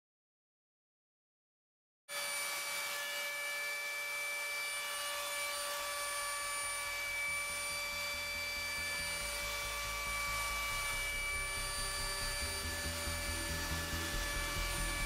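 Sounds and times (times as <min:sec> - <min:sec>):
machine motor whining: 0:02.2 - 0:15.0
low rumble: 0:06.7 - 0:15.0.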